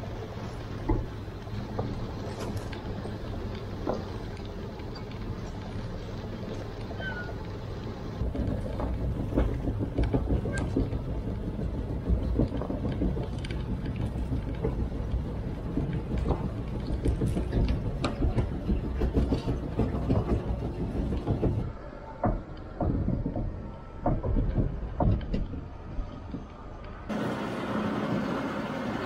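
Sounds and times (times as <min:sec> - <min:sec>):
feed mixer wagon rumbling: 0:00.0 - 0:25.9
knocks: 0:08.2 - 0:25.7
metal clanks and rattles: 0:08.2 - 0:26.4.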